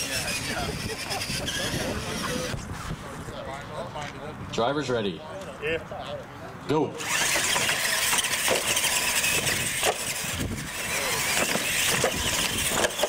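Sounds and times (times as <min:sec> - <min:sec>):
electric motors whining: 0:00.0 - 0:02.6, 0:07.0 - 0:13.0
toy trucks knocking on wooden ramps: 0:07.2 - 0:10.4, 0:11.2 - 0:13.0.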